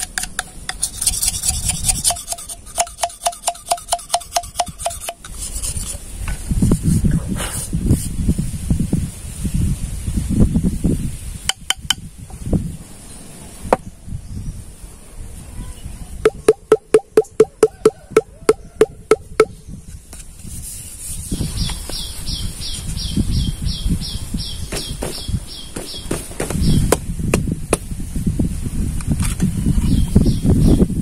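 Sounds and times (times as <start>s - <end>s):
knife scraping bamboo: 0.0s - 6.1s
hollow knocks on bamboo: 2.0s - 5.3s, 16.3s - 20.2s, 24.7s - 27.9s.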